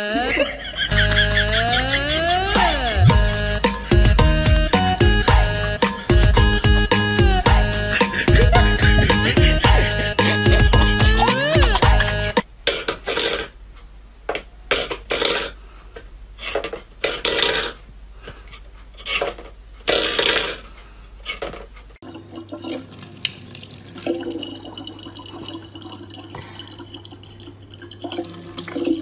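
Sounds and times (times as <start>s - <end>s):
tap water filling a bottle: 22.0s - 29.0s.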